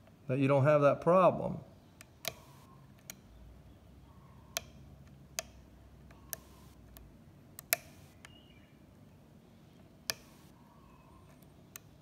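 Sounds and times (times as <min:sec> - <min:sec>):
lock pick metallic clicks: 0:02.0 - 0:03.4, 0:04.5 - 0:08.4, 0:10.0 - 0:10.5.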